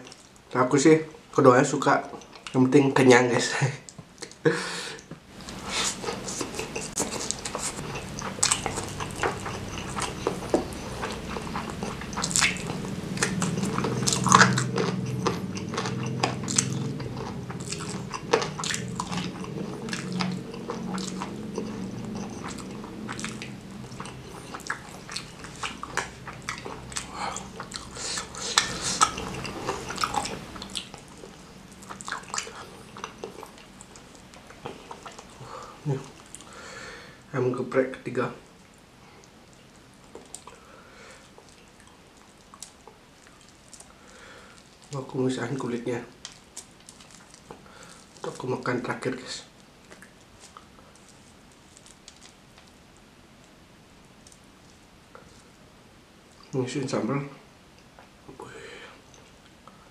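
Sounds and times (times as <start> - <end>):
person chewing food: 5.3 - 37.0, 38.5 - 45.0, 46.1 - 48.5, 49.5 - 52.8.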